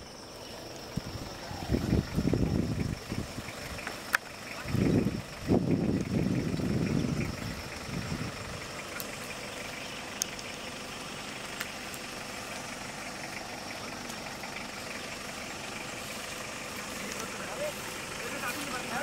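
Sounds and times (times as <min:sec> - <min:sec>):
car engine idling: 0:00.0 - 0:19.0
faint clicks: 0:10.1 - 0:10.6.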